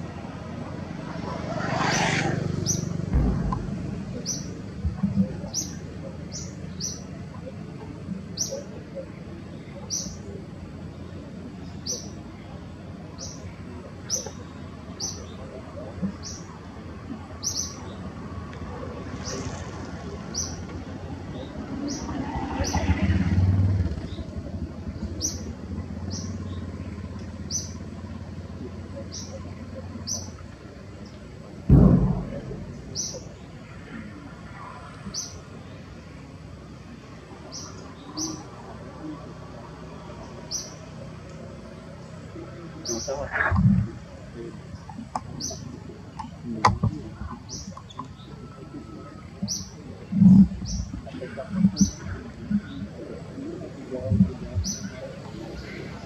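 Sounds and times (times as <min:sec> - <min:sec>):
vehicle engine passing by: 0:00.6 - 0:05.5, 0:21.5 - 0:29.0
bird chirping: 0:02.6 - 0:07.1, 0:32.1 - 0:33.6
dull low thumps: 0:03.1 - 0:05.6, 0:31.7 - 0:33.4.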